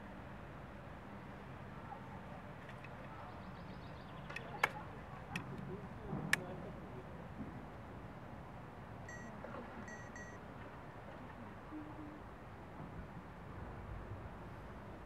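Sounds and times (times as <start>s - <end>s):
short high chirps: 9.1s - 10.4s.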